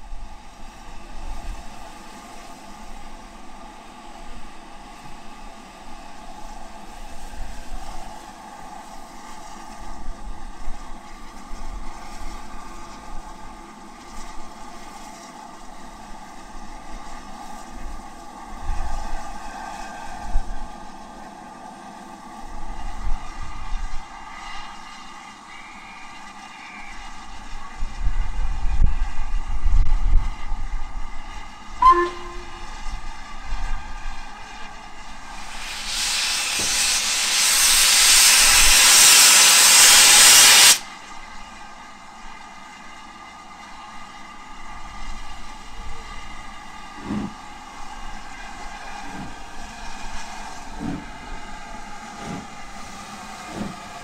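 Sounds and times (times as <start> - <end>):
steam locomotive hissing: 30.3 - 54.0.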